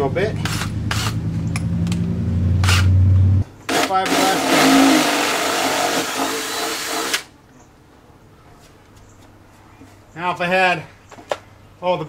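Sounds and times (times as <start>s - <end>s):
cordless drill whirring: 3.7s - 7.3s
drill grinding through fiberglass: 3.7s - 7.3s.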